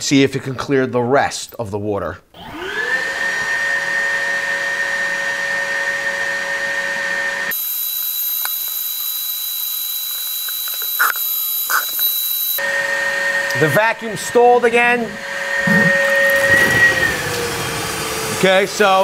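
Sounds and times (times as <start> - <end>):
wet vacuum whining: 2.4 - 19.0.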